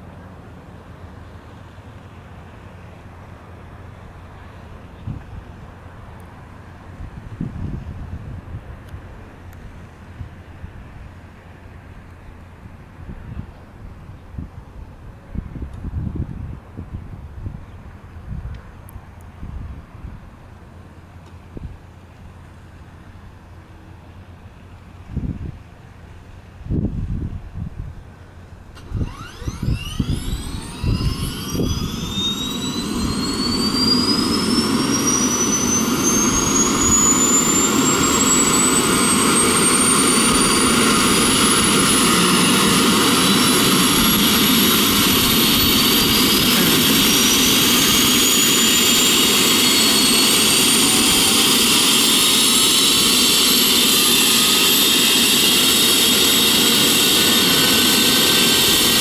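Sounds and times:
helicopter turbine whine: 0:28.4 - 0:59.0
second rising whine: 0:28.8 - 0:59.0.

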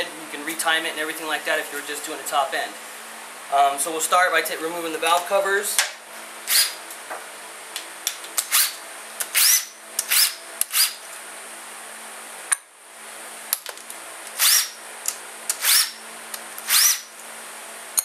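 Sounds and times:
cordless drill whining: 0:06.5 - 0:06.8, 0:08.5 - 0:11.0, 0:14.4 - 0:14.8, 0:15.6 - 0:16.0, 0:16.6 - 0:17.1.

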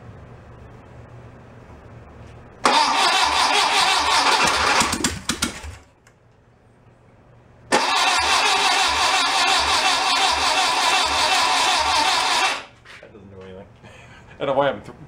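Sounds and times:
engine starter cranking: 0:02.6 - 0:05.2, 0:07.7 - 0:12.7.

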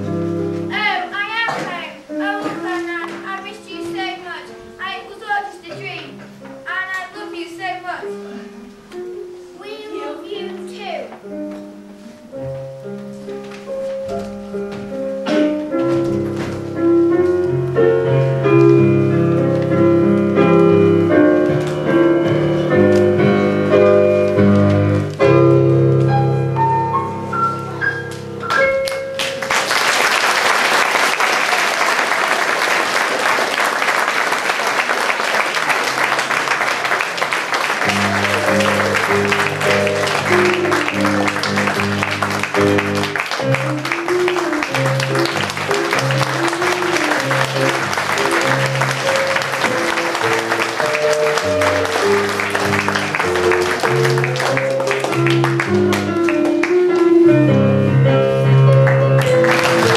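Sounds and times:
piano music: 0:00.0 - 0:59.9
audience applause: 0:29.2 - 0:56.8, 0:58.8 - 0:59.9.

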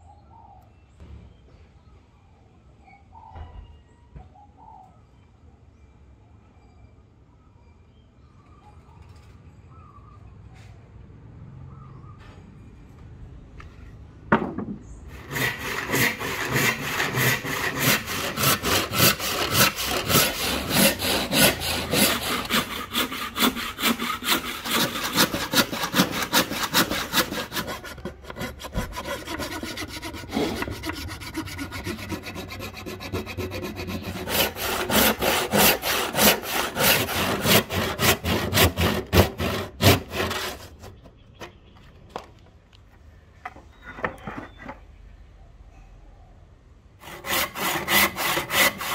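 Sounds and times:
hand saw cutting wood: 0:15.1 - 0:41.1, 0:47.0 - 0:48.9.

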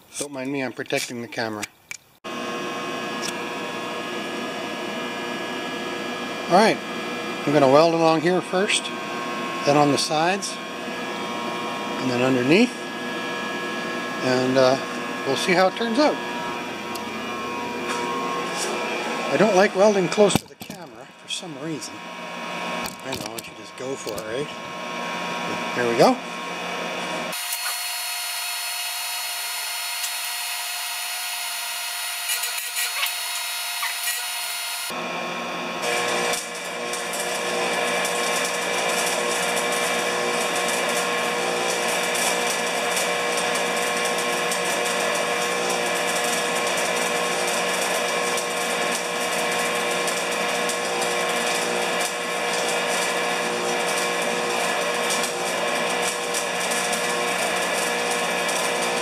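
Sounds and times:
arc welding crackling sizzle: 0:00.0 - 0:35.0, 0:35.8 - 0:59.0
steady hum: 0:02.3 - 0:38.0.

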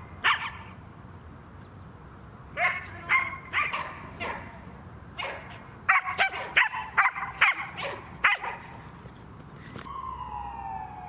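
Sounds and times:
dog barking: 0:00.2 - 0:00.6, 0:02.6 - 0:04.6, 0:05.2 - 0:08.8.

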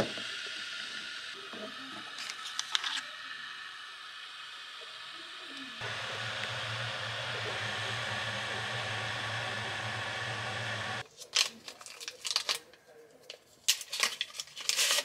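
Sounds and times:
electric kettle hissing: 0:00.0 - 0:11.0
foil packet crinkling: 0:11.1 - 0:15.0.

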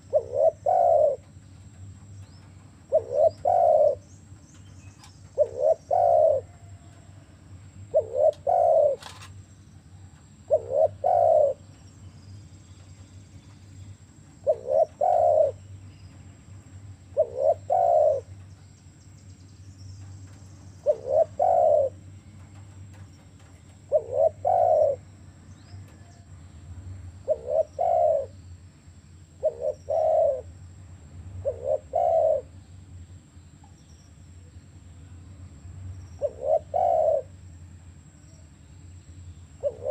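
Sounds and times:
dove cooing: 0:00.0 - 0:01.4, 0:02.8 - 0:04.2, 0:05.0 - 0:07.2, 0:07.8 - 0:09.3, 0:10.4 - 0:11.8, 0:14.4 - 0:15.8, 0:17.1 - 0:18.4, 0:20.3 - 0:22.1, 0:22.9 - 0:26.3, 0:27.2 - 0:28.4, 0:29.4 - 0:30.6, 0:31.4 - 0:32.6, 0:36.2 - 0:37.4, 0:39.6 - 0:39.9
faint steady hum: 0:00.0 - 0:39.9.

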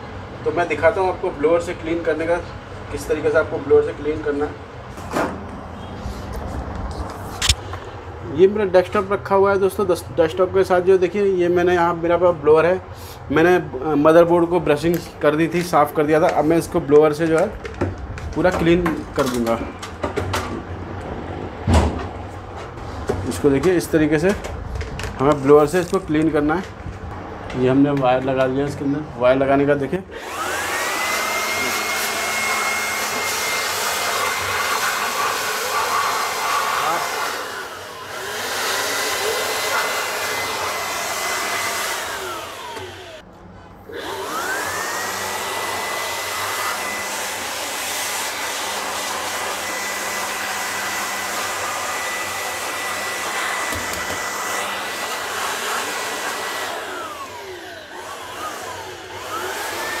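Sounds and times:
electric air blower whining: 0:02.8 - 0:08.5, 0:30.0 - 1:00.0.

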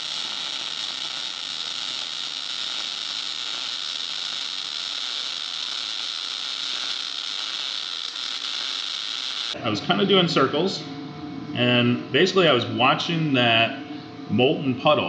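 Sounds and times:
welding arc crackling: 0:00.0 - 0:09.6.

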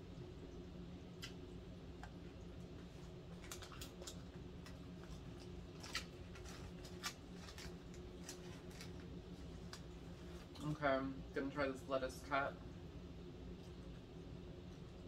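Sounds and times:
faint steady hum: 0:00.0 - 0:15.0
food packaging clicks and crinkles: 0:03.3 - 0:10.8.

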